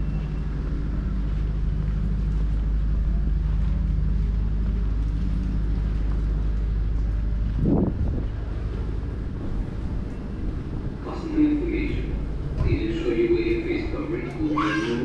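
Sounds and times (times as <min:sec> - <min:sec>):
vehicle engine running: 0:00.0 - 0:14.5
low hum: 0:00.0 - 0:15.0
street traffic: 0:00.0 - 0:15.0.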